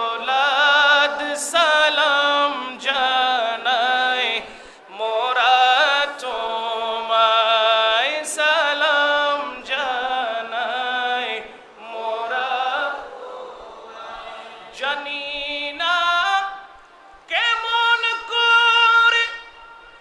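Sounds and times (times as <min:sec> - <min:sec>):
man chanting: 0:00.0 - 0:13.1, 0:14.6 - 0:20.0
short breaths: 0:04.5 - 0:04.9.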